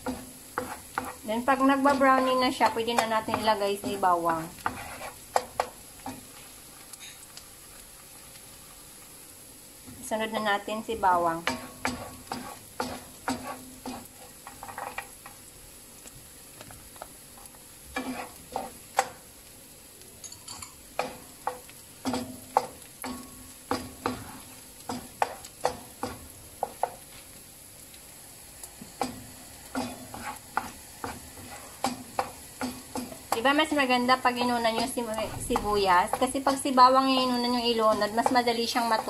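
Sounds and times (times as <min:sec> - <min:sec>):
wooden spoon knocking on a pan: 0:00.0 - 0:06.3, 0:11.3 - 0:15.4, 0:21.0 - 0:27.1, 0:29.0 - 0:39.0
onion and garlic sizzling: 0:00.0 - 0:39.0.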